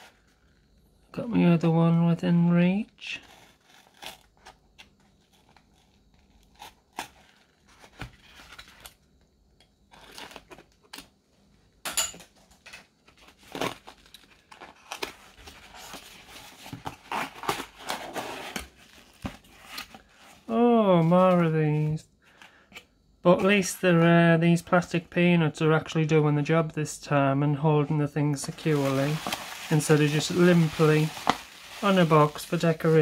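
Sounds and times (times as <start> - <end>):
packing tape tearing: 3.2 - 4.6, 5.2 - 8.9, 13.2 - 20.0, 28.6 - 33.0.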